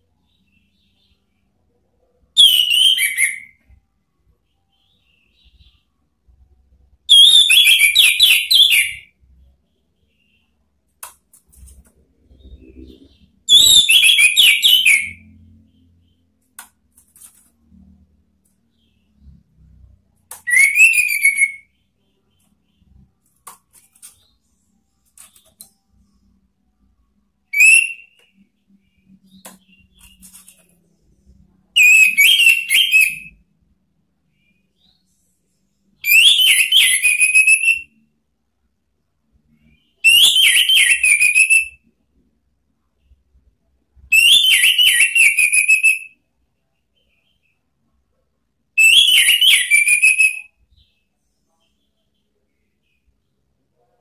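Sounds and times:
bird singing whistled phrases: 2.4 - 3.6, 7.1 - 9.1, 12.4 - 15.2, 20.4 - 21.7, 27.5 - 28.2, 31.8 - 33.4, 36.0 - 37.9, 40.0 - 41.8, 44.1 - 46.2, 48.8 - 50.5.

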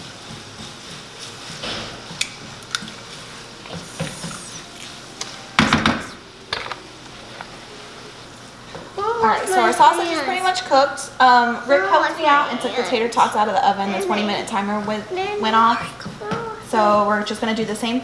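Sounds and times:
sausage sizzling in a frying pan: 0.0 - 15.8.

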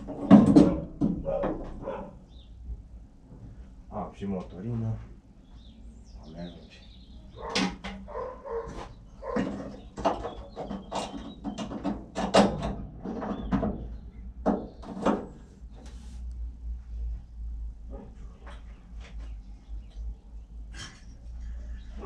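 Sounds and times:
dog barking: 1.2 - 2.3, 7.3 - 9.5.

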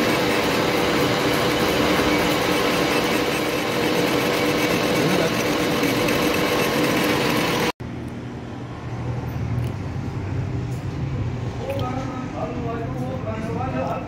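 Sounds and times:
machine humming with mechanical noise: 0.0 - 11.5.

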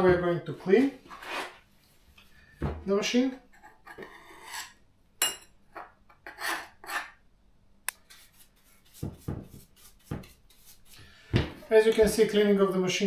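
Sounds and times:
brush scrubbing: 8.0 - 11.1.

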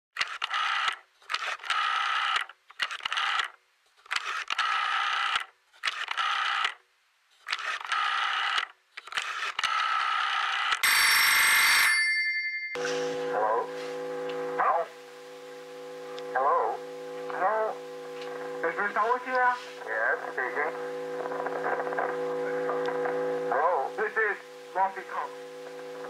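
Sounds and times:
telephone ringing: 9.7 - 15.0
noise burst with high tones: 12.8 - 26.0.

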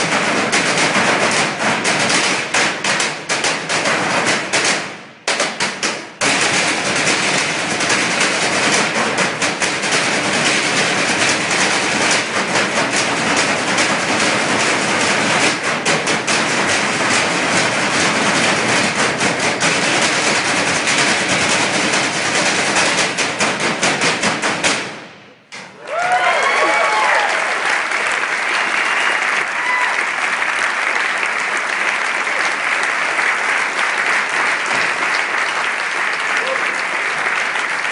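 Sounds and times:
drumming on metal trash cans: 0.0 - 25.8.

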